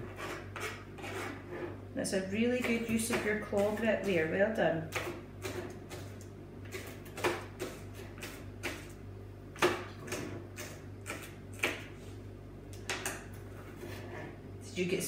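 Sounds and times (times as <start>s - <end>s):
knives chopping on plastic boards: 6.7s - 8.9s, 9.6s - 11.9s.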